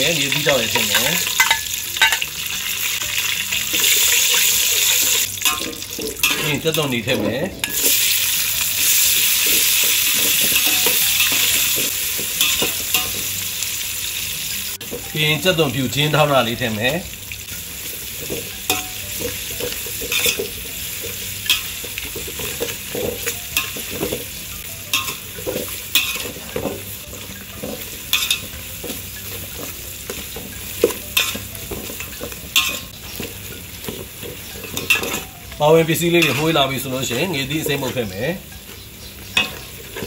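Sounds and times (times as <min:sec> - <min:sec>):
food sizzling in hot oil: 0:00.0 - 0:40.0
metal ladle scraping a pot: 0:17.9 - 0:40.0.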